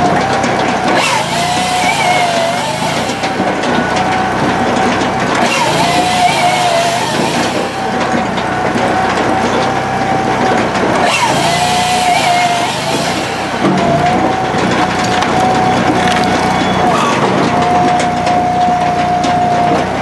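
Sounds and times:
firewood processor engine drone: 0.0 - 20.0
high whine: 0.0 - 20.0.

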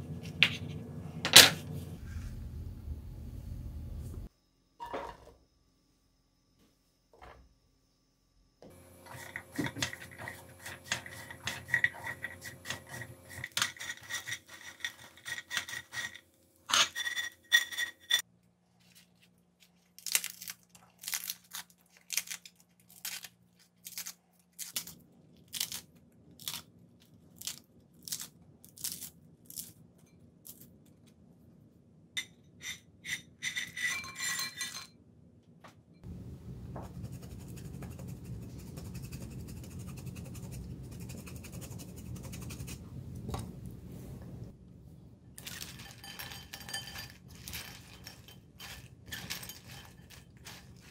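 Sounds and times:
bread scraping in frying pan: 9.0 - 18.2
croutons clinking into glass bowl: 45.4 - 50.9.

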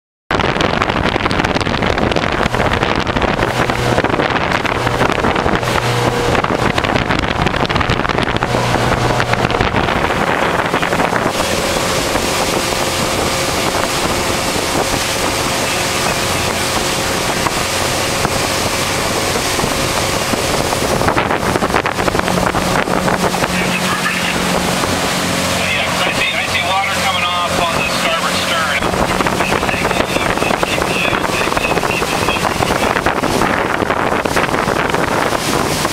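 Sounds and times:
motorboat engine drone: 0.3 - 35.9
rushing water: 0.3 - 35.9
wind buffeting microphone: 0.3 - 35.9.

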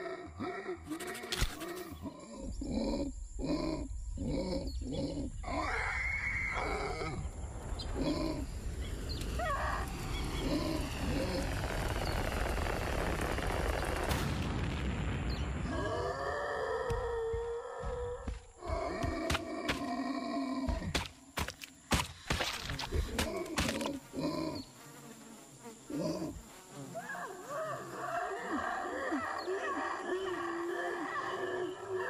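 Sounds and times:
rhythmic dinosaur grunts: 0.0 - 5.5, 22.9 - 24.7
rising vocal cry: 0.0 - 12.1, 15.6 - 20.9, 27.0 - 32.0
low rumble: 7.0 - 16.2
rushing noise: 7.1 - 15.0
sharp crack: 11.0 - 15.6.

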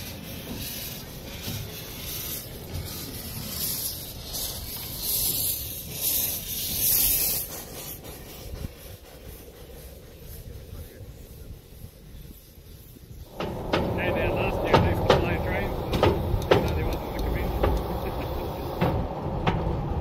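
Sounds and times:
steam hissing: 0.0 - 20.0.

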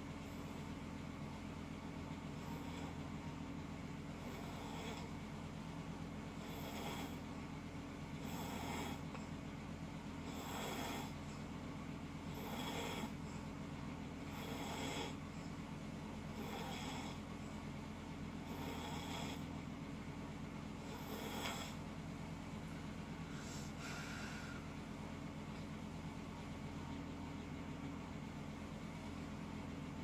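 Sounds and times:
person snoring: 2.4 - 3.1, 4.2 - 5.1, 6.4 - 7.2, 8.2 - 9.1, 10.2 - 11.2, 12.3 - 13.2, 14.3 - 15.2, 16.3 - 17.3, 18.4 - 19.5, 20.8 - 21.8, 23.3 - 24.6.

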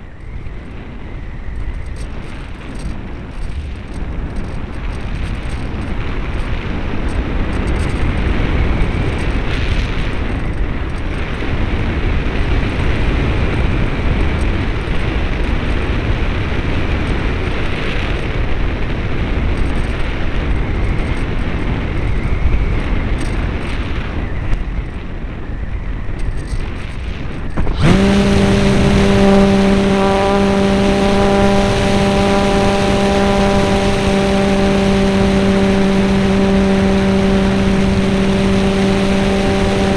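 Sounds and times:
air rushing past: 27.4 - 39.9
high-pitched model plane motor: 27.5 - 39.9.

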